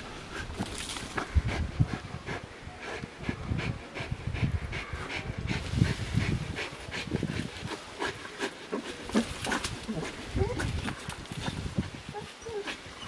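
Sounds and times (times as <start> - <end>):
dog panting hard: 1.2 - 10.8.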